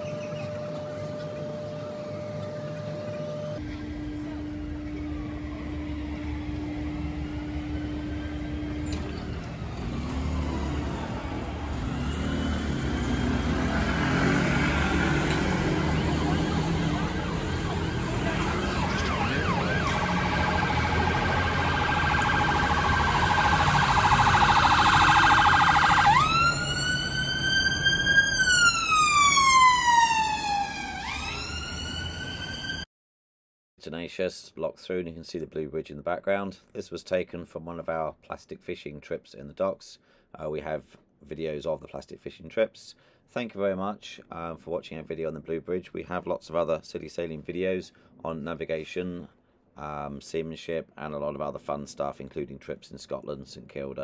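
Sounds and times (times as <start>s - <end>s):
road traffic rumbling: 0.0s - 32.8s
ambulance siren: 0.0s - 32.9s.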